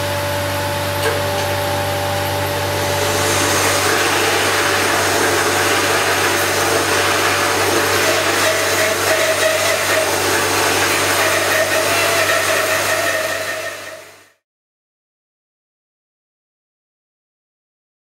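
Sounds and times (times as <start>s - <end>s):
bandsaw cutting log: 2.0s - 14.4s.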